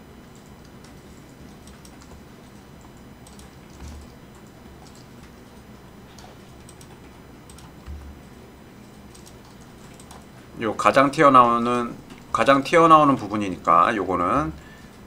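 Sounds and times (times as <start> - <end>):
steady low hum: 0.0 - 15.0
keyboard and mouse clicks: 0.4 - 8.3, 8.9 - 10.3
soft low thumps: 7.8 - 8.4.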